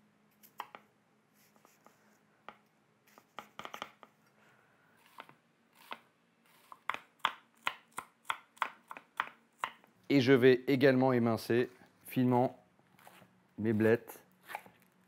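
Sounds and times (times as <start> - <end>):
knife chopping onion on board: 5.0 - 9.8.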